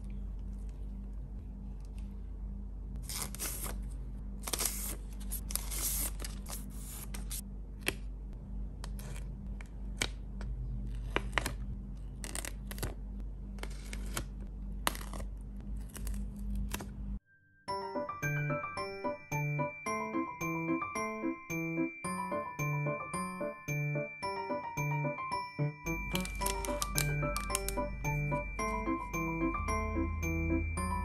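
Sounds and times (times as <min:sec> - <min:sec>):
faint steady low hum: 0:00.0 - 0:03.1
plastic sleeves rustling: 0:26.1 - 0:27.8
stickers peeling off backing paper: 0:26.1 - 0:28.2.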